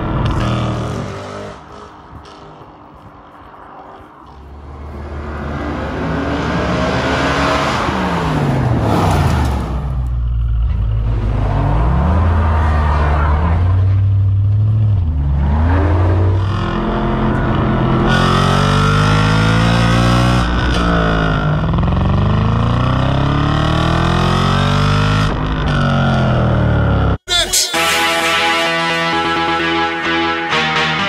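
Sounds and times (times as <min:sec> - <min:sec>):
car exhaust accelerating: 0:04.2 - 0:27.2.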